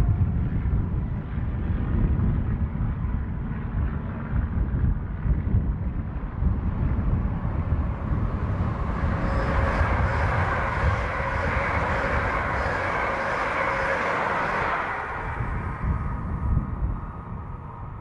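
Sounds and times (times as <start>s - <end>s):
wind on microphone: 0.0s - 18.0s
train passing: 6.5s - 17.9s.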